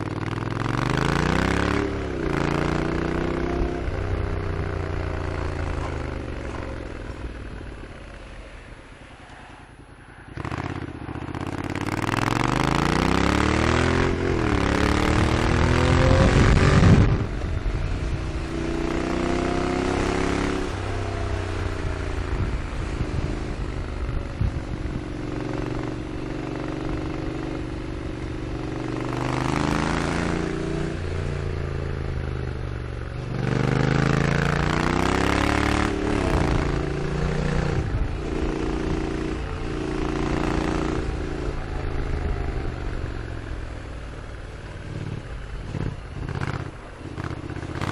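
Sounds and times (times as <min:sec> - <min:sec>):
motorcycle engine accelerating: 0:00.0 - 0:09.0, 0:10.3 - 0:47.9
wind rush: 0:13.8 - 0:19.3, 0:20.0 - 0:25.8.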